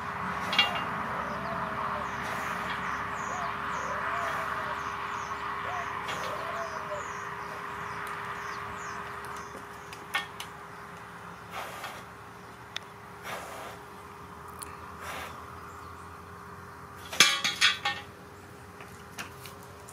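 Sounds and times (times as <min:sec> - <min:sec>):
low rising-and-falling calls: 0:00.0 - 0:11.5
small birds chirping: 0:00.1 - 0:17.2.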